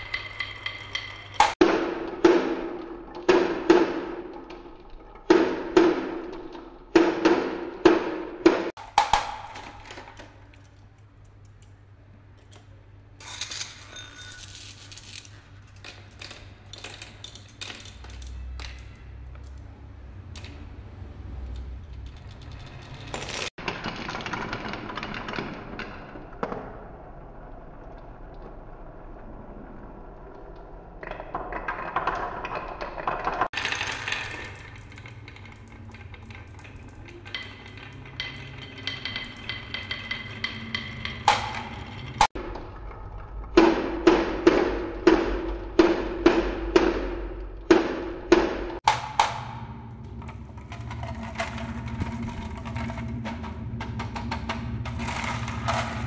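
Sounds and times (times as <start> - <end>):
glass marbles clattering on wooden tracks: 0.0 - 1.6, 13.2 - 19.6, 21.4 - 26.6, 31.0 - 42.4, 48.8 - 56.0.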